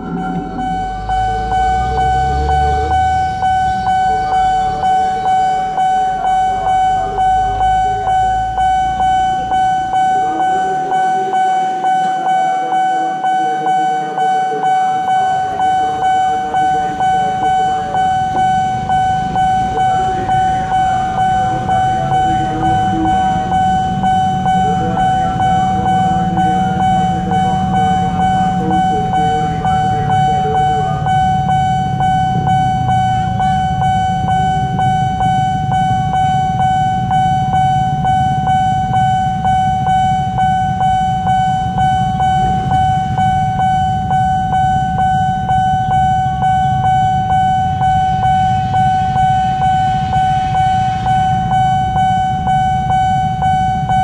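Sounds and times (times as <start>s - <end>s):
level crossing warning bell: 0.0s - 54.0s
motorbike engines running: 15.0s - 54.0s.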